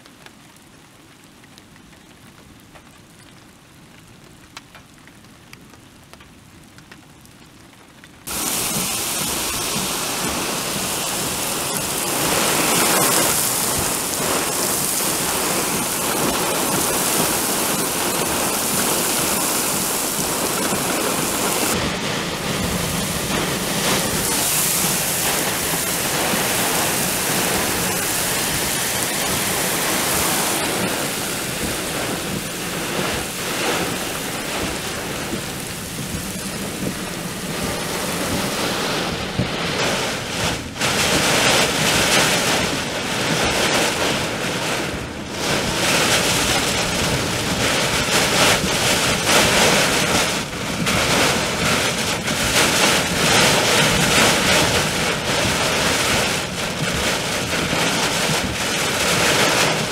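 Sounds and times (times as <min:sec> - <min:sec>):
raindrop ticks: 0:00.0 - 0:38.7
heavy rain downpour: 0:00.0 - 0:59.9.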